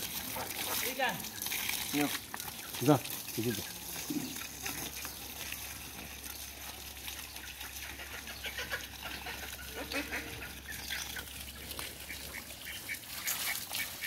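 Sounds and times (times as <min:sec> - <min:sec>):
ducks quacking: 0:07.2 - 0:14.0.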